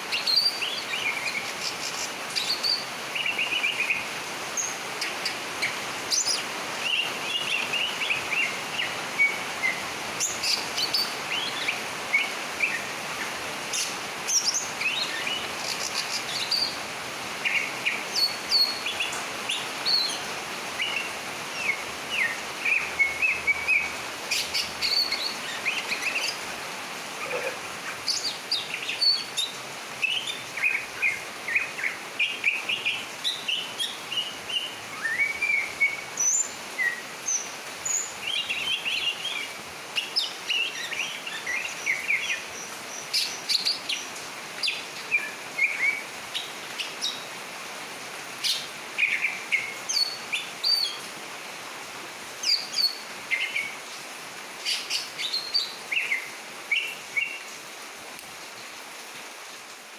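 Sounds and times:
bird singing chirps and whistles: 0.1s - 4.8s, 5.6s - 12.9s, 17.4s - 20.2s, 20.8s - 26.4s, 28.1s - 42.5s, 44.6s - 47.2s, 49.0s - 51.0s, 52.4s - 53.7s.

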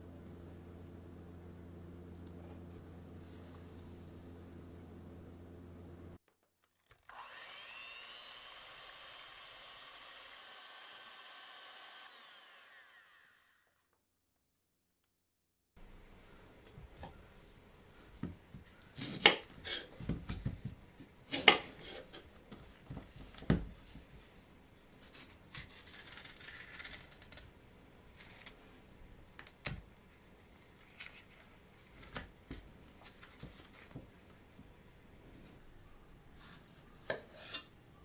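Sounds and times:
banana peel scraping and rubbing: 25.0s - 27.5s.

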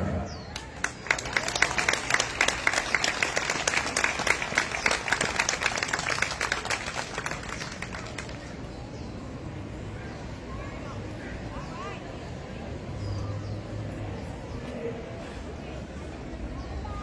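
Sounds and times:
crowd applauding: 0.5s - 8.6s.

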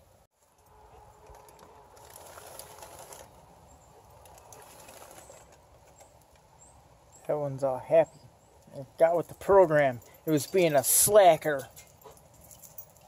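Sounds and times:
foil rustling: 1.2s - 3.5s, 4.1s - 6.0s.

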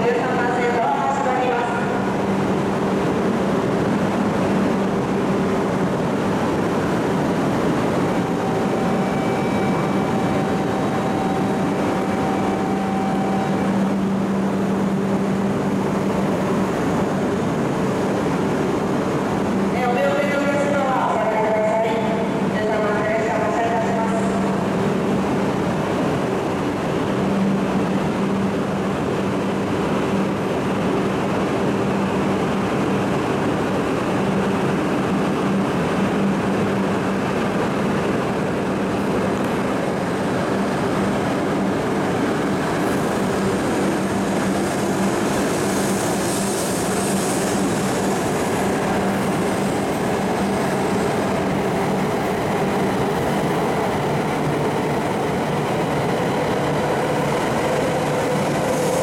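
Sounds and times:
train rolling rumble: 0.0s - 59.0s.

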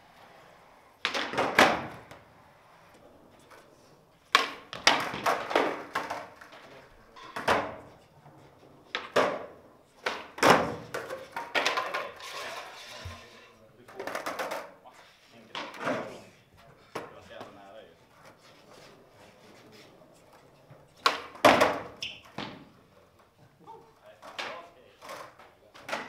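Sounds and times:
skateboard wheels rolling: 0.0s - 26.0s
skateboard clacking on hard floor: 1.0s - 2.3s, 3.3s - 8.0s, 8.8s - 14.8s, 15.5s - 16.2s, 20.8s - 22.8s, 24.2s - 26.0s.

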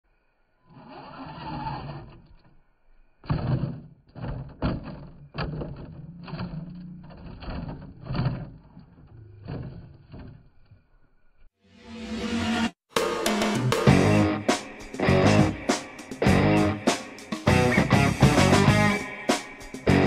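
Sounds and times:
toy car clattering on concrete rubble: 3.3s - 10.5s.

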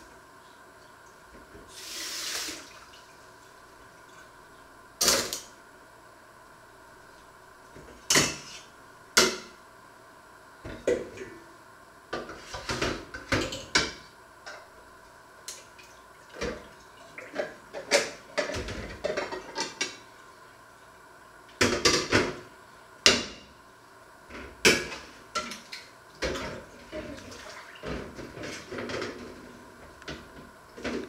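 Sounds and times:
water sloshing in a sink: 25.4s - 29.4s.

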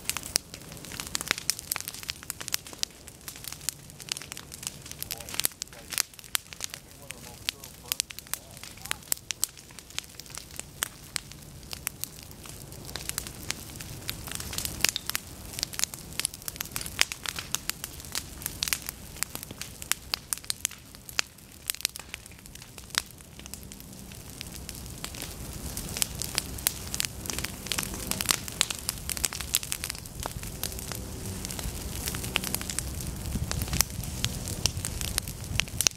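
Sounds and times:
fire crackling and popping: 0.0s - 35.9s.

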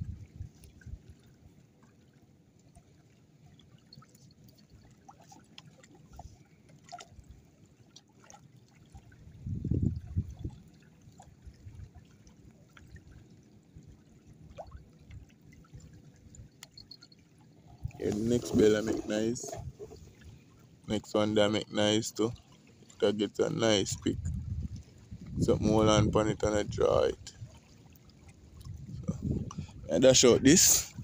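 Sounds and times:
water trickling and lapping: 0.0s - 31.0s
small ticks: 16.6s - 17.2s.

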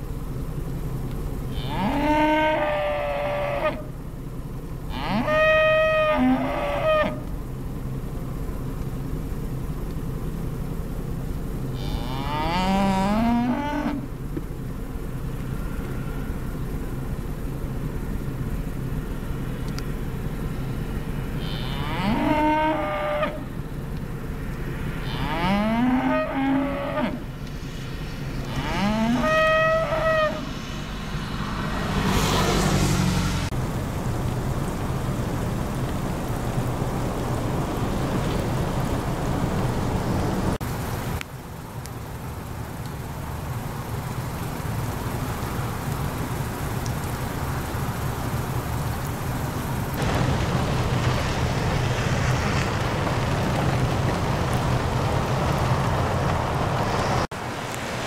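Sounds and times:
cattle mooing: 1.5s - 3.9s, 4.9s - 7.2s, 11.8s - 14.0s, 21.4s - 23.5s, 25.0s - 27.3s, 28.4s - 30.4s.

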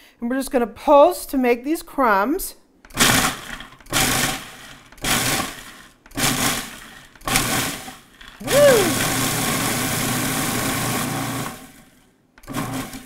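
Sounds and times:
food processor motor and blade: 2.9s - 13.0s.

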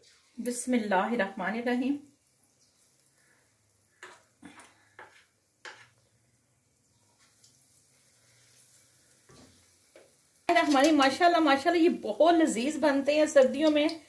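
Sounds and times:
batter frying hiss: 0.0s - 14.0s
spoon tapping metal pan: 4.0s - 4.3s, 5.0s - 6.0s.

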